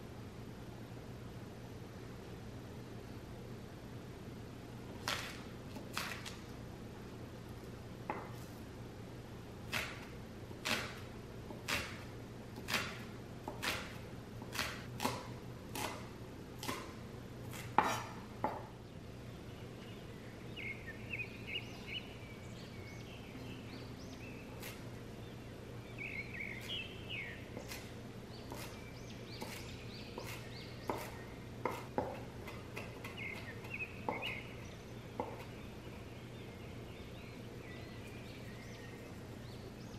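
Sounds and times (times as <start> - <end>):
knife cutting on wooden board: 5.0 - 6.4, 9.7 - 12.0, 12.6 - 18.7, 29.4 - 33.5.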